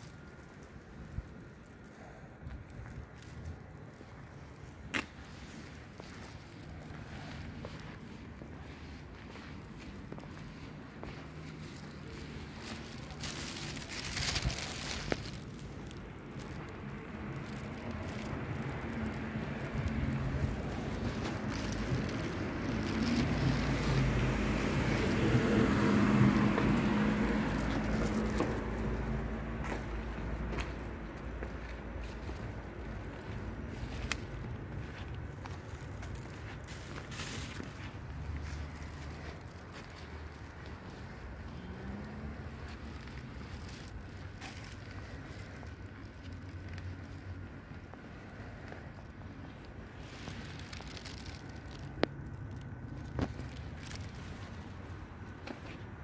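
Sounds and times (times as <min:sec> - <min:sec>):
distant street traffic rumble: 0:00.0 - 0:56.0
car passing by: 0:06.2 - 0:34.3, 0:36.2 - 0:47.5.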